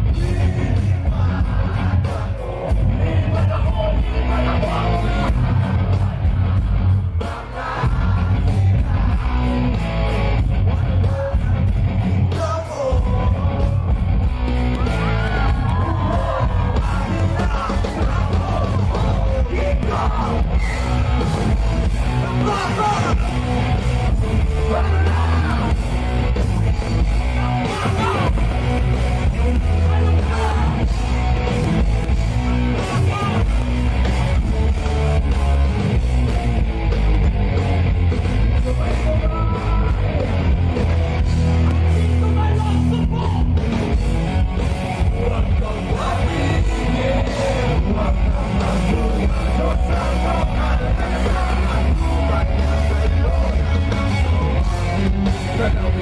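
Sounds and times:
electric guitar: 0.0s - 56.0s
rock band playing live: 0.0s - 56.0s
person singing: 24.4s - 25.8s, 27.4s - 28.4s, 45.0s - 56.0s.

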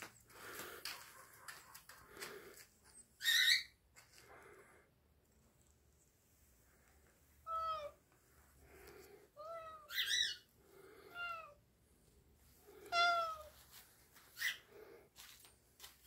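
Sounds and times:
cat meowing: 7.4s - 8.0s, 12.7s - 13.6s.

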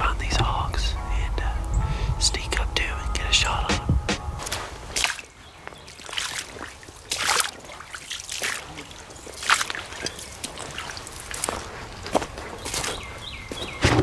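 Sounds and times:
footsteps on wet gravel: 3.7s - 14.0s.

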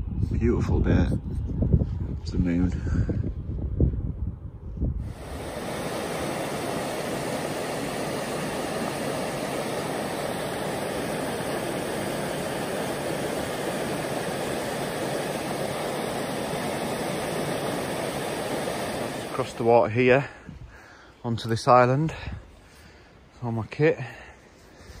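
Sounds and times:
river water rushing: 5.1s - 19.5s.

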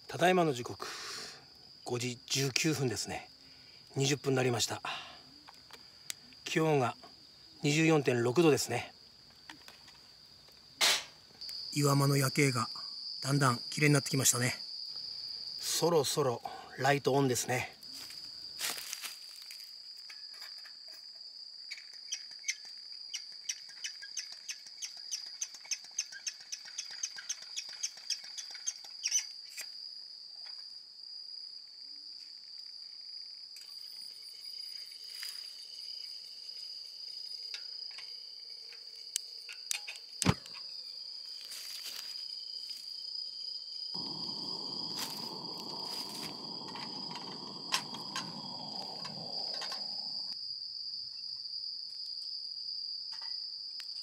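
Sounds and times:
insects trilling: 0.0s - 54.0s
low steady rushing noise: 44.0s - 50.3s.

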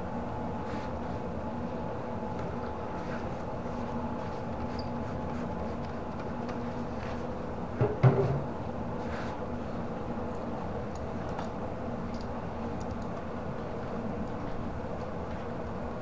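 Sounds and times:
knocks of hard object: 7.8s - 8.5s.

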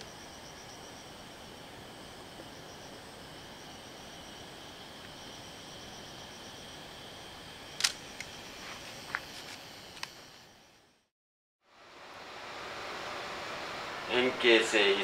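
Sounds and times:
insects chorus: 0.0s - 11.1s, 11.7s - 15.0s.

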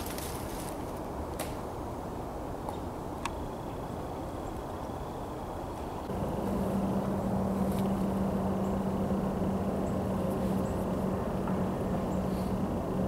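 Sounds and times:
distant engine droning: 5.0s - 13.0s.

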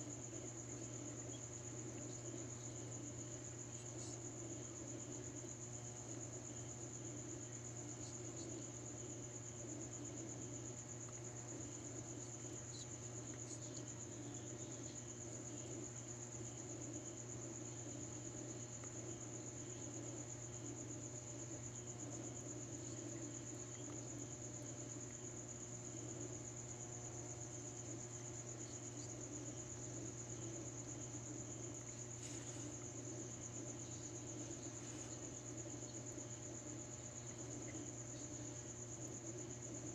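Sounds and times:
crickets trilling: 0.0s - 39.9s
low steady hum: 0.0s - 39.9s.

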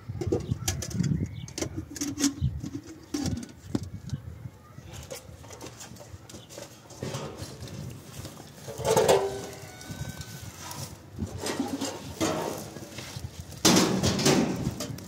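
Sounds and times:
farm animals calling: 8.6s - 12.4s.

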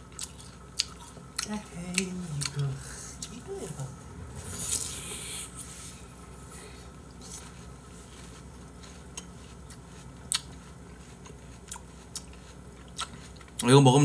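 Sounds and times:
chewing and crunching watermelon: 0.0s - 3.6s, 7.0s - 14.0s.

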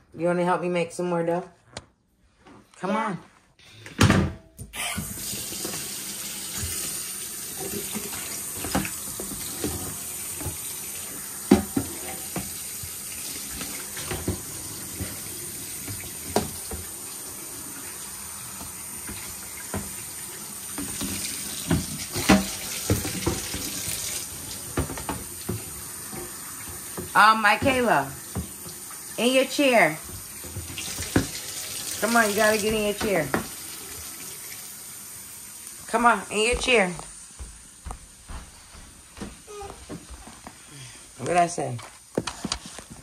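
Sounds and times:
tap running into sink: 5.0s - 17.1s, 18.5s - 29.1s, 30.0s - 34.3s.

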